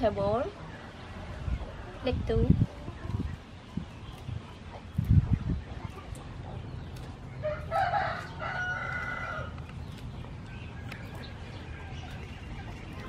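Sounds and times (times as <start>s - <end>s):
lettuce leaves snapping: 6.9s - 8.3s, 8.9s - 11.5s
rooster crowing: 7.4s - 9.5s.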